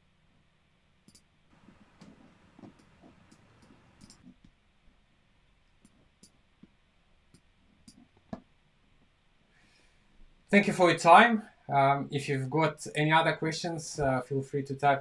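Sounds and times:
faint computer mouse clicks: 1.1 - 1.3, 2.0 - 4.4.

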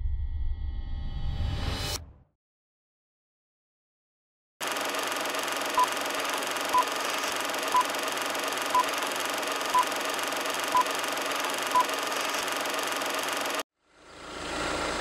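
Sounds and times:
film projector clatter and hiss: 4.6 - 13.7.

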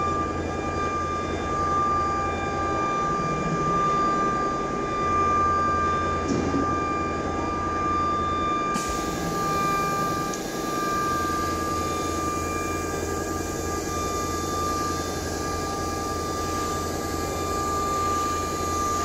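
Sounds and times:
router spindle whine: 8.8 - 19.0.

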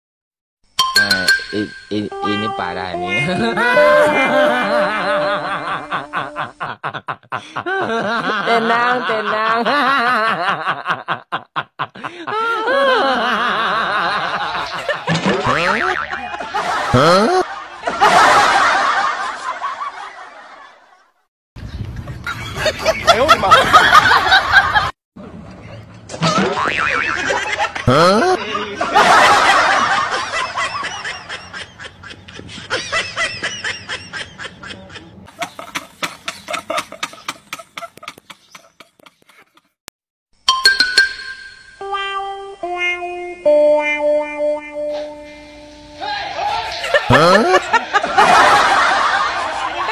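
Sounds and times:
music: 0.8 - 4.2, 41.7 - 46.1
people laughing: 3.0 - 21.0, 22.2 - 24.9, 25.6 - 39.7, 46.2 - 49.9.

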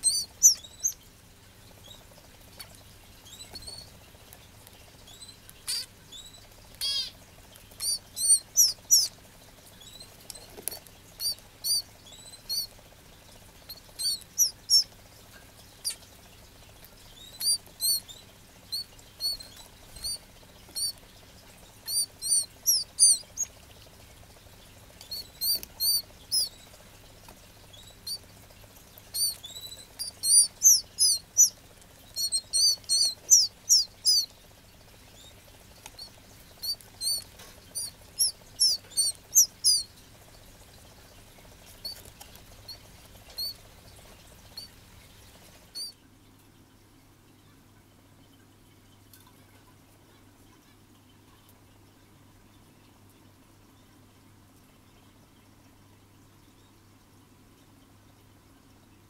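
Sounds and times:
bird chick chirping: 0.0 - 1.0, 1.8 - 4.0, 4.9 - 9.2, 9.8 - 12.8, 13.6 - 14.9, 16.9 - 21.0, 21.7 - 23.6, 24.8 - 26.8, 27.6 - 28.3, 29.0 - 34.4, 35.0 - 39.9, 41.7 - 45.9.

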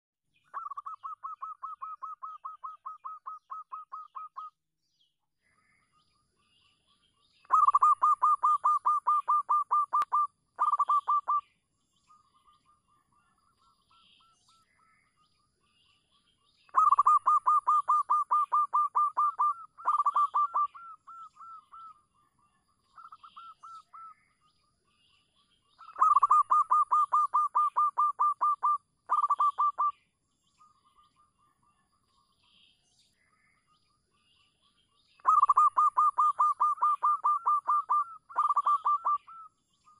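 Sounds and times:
dove cooing: 7.5 - 11.4, 16.8 - 21.6, 25.9 - 29.9, 35.2 - 39.4.

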